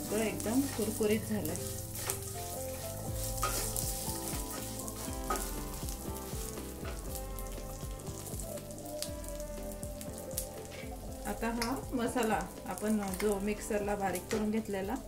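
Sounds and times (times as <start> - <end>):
spices sizzling in hot oil: 0.0 - 15.0
spatula scraping and knocking pan: 0.2 - 7.1.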